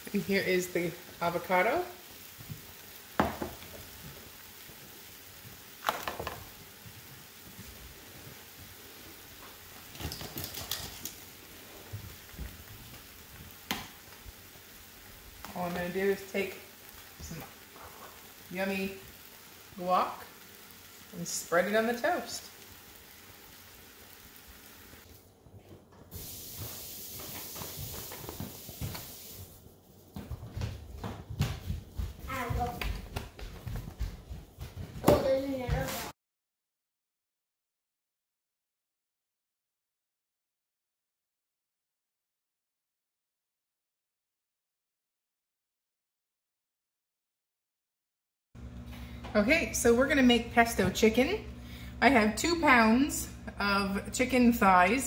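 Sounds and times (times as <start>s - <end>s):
eggs sizzling in a pan: 0.0s - 25.2s, 26.0s - 29.8s, 48.6s - 55.0s.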